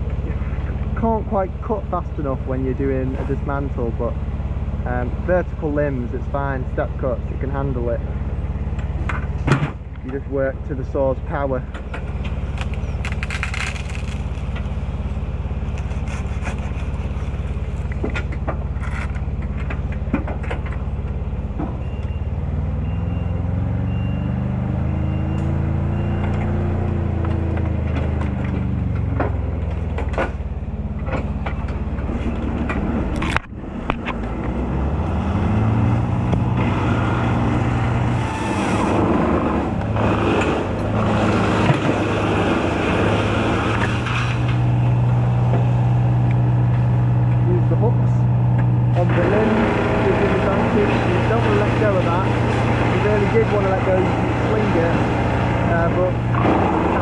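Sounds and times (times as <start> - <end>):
machinery engine running: 0.0 - 57.0
scattered clicks and knocks: 17.7 - 21.8, 27.2 - 34.6.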